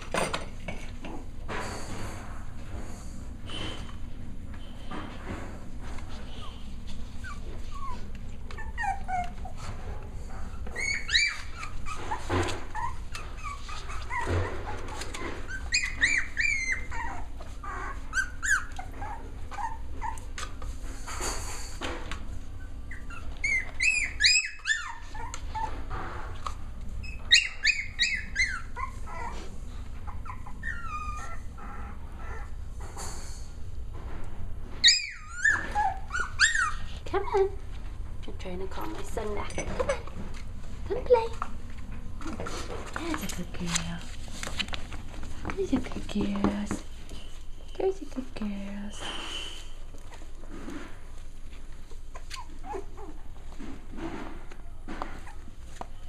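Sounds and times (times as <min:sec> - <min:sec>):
puppies whining and yipping: 0:06.1 - 0:21.8, 0:22.4 - 0:32.7, 0:34.8 - 0:37.4, 0:39.5 - 0:40.5, 0:51.1 - 0:53.9, 0:55.1 - 0:56.0.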